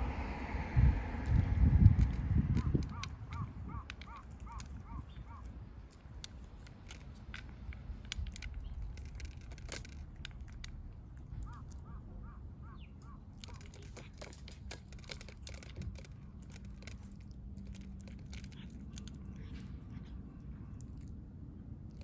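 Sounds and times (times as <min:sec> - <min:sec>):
cats crunching food: 0:00.9 - 0:12.0, 0:13.0 - 0:22.0
bird chirping: 0:02.6 - 0:05.6, 0:11.4 - 0:13.4.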